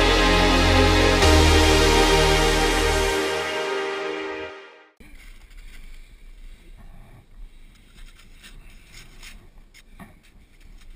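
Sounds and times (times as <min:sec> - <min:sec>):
background music: 0:00.0 - 0:05.0.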